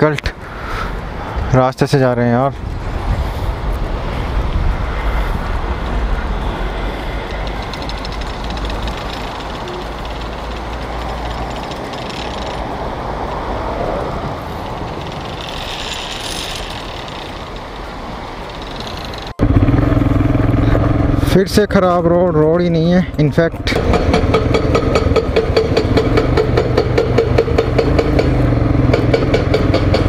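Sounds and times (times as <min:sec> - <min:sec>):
motorcycle engine running: 0:06.8 - 0:12.7, 0:17.2 - 0:30.0.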